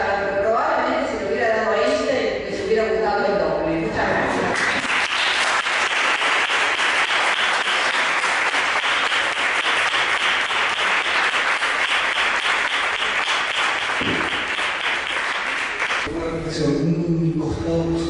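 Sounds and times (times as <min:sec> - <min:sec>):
audience applauding: 0:04.5 - 0:16.1.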